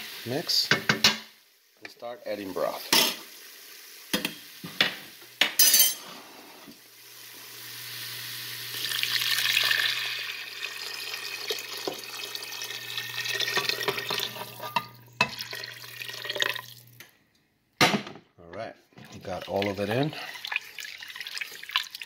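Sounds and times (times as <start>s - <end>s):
liquid pouring into a pot: 6.9s - 17.0s, 19.0s - 22.0s.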